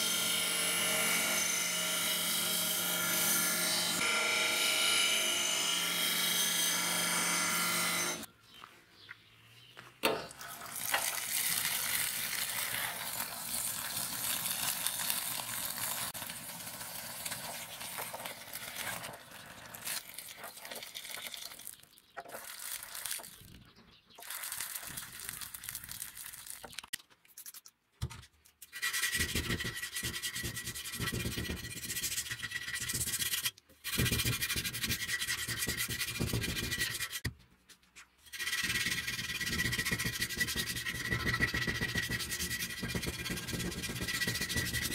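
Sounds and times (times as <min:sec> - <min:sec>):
sanding steel blade: 0:28.8 - 0:37.2, 0:38.3 - 0:44.9.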